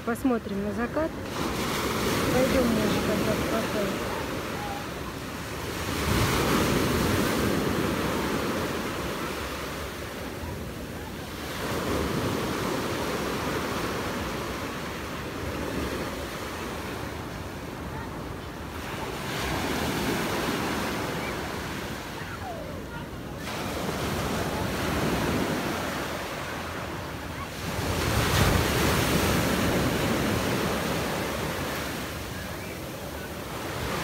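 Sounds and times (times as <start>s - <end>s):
surf breaking on beach: 1.2s - 34.0s.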